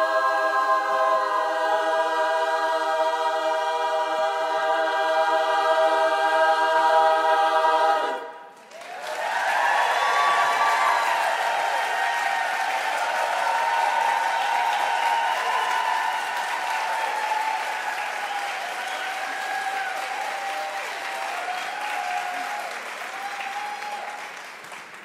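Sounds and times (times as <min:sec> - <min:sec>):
cheering voices: 0:00.0 - 0:25.0
audience applauding: 0:08.6 - 0:25.0.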